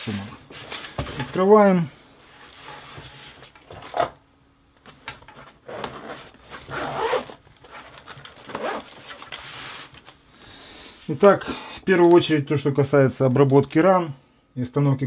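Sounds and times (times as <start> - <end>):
zipper being pulled open: 5.6 - 7.8, 8.4 - 9.9.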